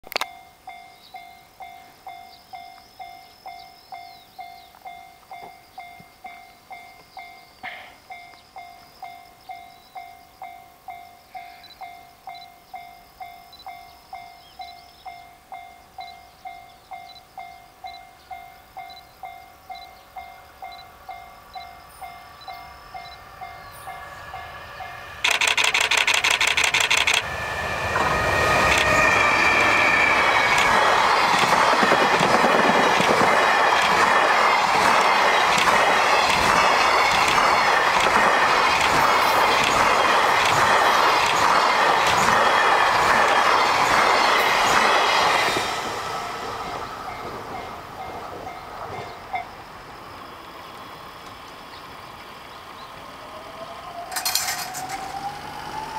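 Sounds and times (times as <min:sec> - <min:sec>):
train wheels clickety-clack: 0:25.2 - 0:49.5, 0:54.1 - 0:55.4.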